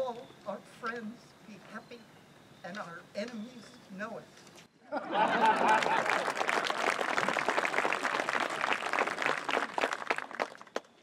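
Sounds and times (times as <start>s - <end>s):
voices: 0.0s - 4.4s
audience clapping: 5.4s - 11.0s.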